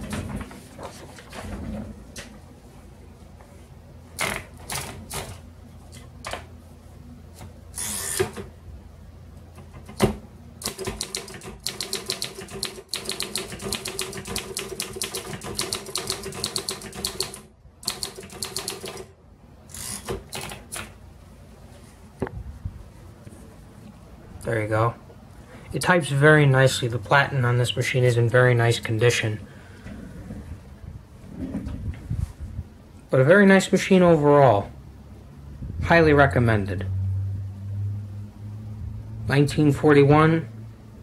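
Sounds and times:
typewriter keystrokes: 0:10.6 - 0:19.1.

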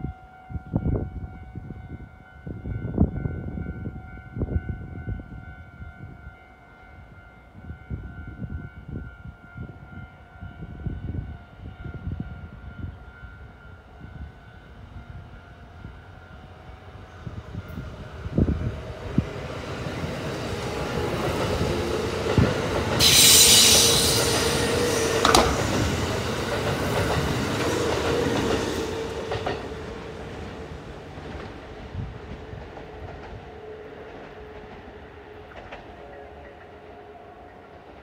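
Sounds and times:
wind rumbling on microphone: 0:00.0 - 0:06.4, 0:07.0 - 0:23.0, 0:24.2 - 0:35.0
electric train running: 0:17.2 - 0:36.8
siren-like high tone: 0:23.0 - 0:25.4.

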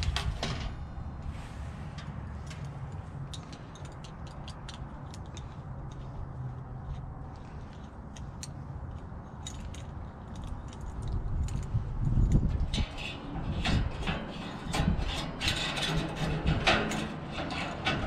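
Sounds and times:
small metal parts clicking: 0:02.4 - 0:06.1.

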